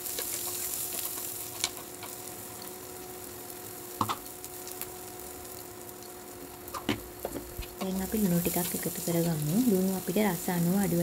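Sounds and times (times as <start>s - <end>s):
metal spoon stirring in pan: 0.0s - 2.3s
cooktop hum: 0.0s - 11.0s
onions sizzling in hot oil: 0.0s - 11.0s.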